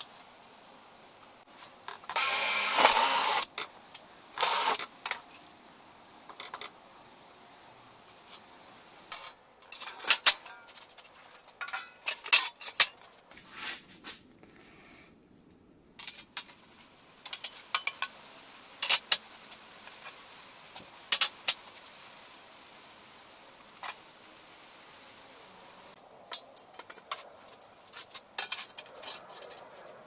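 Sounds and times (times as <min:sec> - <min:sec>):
small metal parts clinking: 0:16.0 - 0:18.1.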